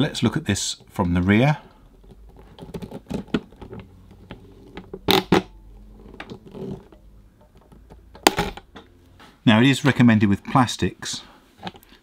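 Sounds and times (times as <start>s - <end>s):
handling clicks and rustling: 0.6s - 8.8s.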